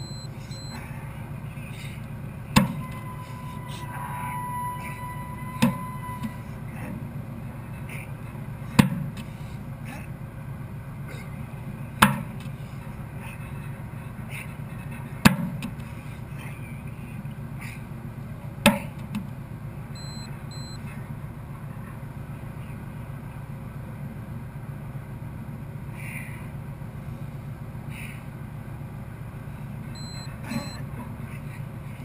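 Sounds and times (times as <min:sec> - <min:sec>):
faint short beeps: 0:00.0 - 0:00.9, 0:02.7 - 0:06.5, 0:20.0 - 0:20.9, 0:30.0 - 0:30.8
low rumble: 0:00.0 - 0:12.0.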